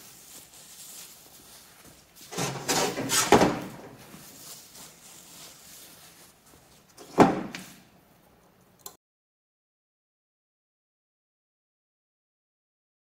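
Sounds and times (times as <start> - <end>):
metal scraping and clunking: 2.2 - 4.1.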